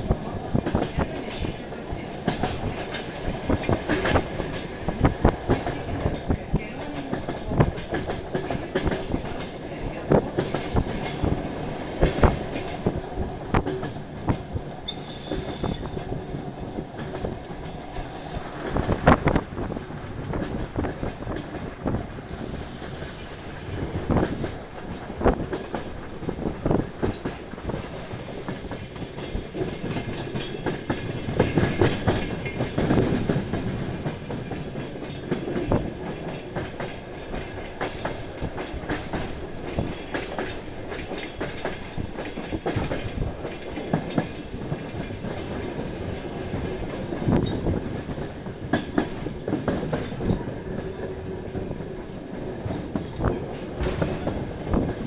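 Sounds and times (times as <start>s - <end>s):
train rumble: 0.0s - 55.0s
wheel squeals: 14.9s - 16.5s
train wheels knocking over joints: 22.8s - 55.0s.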